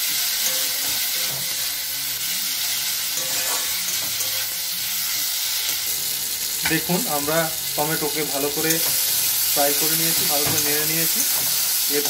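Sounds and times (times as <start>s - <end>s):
vegetables sizzling in hot oil: 0.0s - 12.0s
metal spatula scraping pan: 3.2s - 4.6s.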